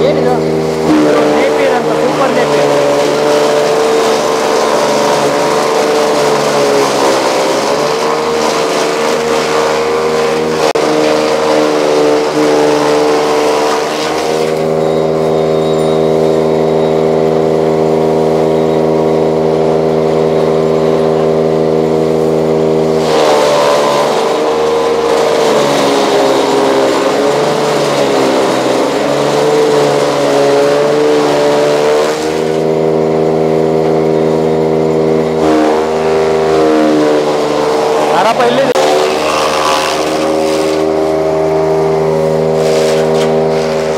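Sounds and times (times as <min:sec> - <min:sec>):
chaff cutter motor humming: 0:00.0 - 0:43.9
grass chopping noise: 0:01.9 - 0:14.6, 0:23.0 - 0:32.6, 0:35.4 - 0:41.0, 0:42.5 - 0:43.9.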